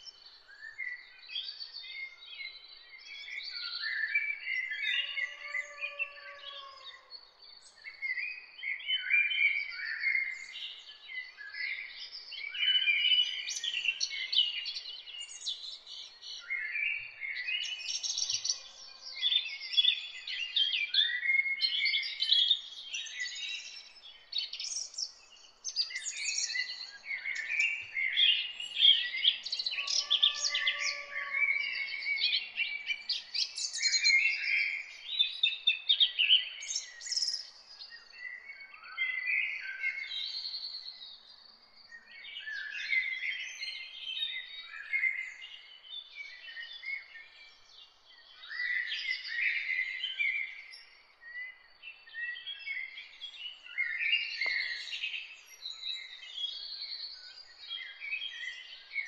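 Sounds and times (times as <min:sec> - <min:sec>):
birds chirping and twittering: 0:00.0 - 0:59.0.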